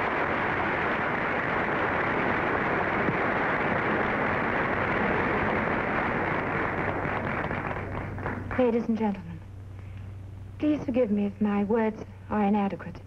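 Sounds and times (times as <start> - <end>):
audience applauding: 0.0 - 8.8
faint low hum: 0.0 - 13.0.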